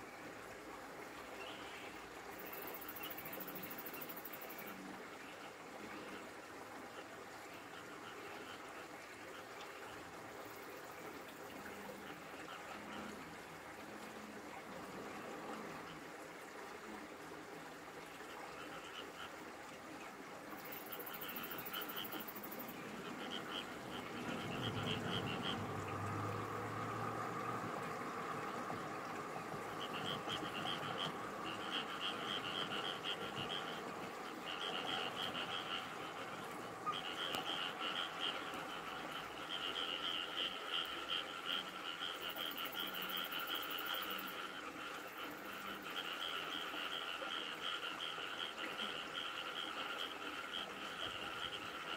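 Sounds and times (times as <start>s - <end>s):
background frog chorus: 0.0s - 51.9s
frogs croaking: 0.0s - 51.9s.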